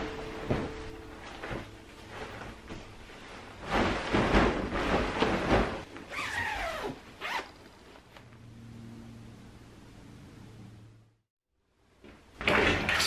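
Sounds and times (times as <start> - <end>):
bedding rustling and flapping: 0.1 - 8.2.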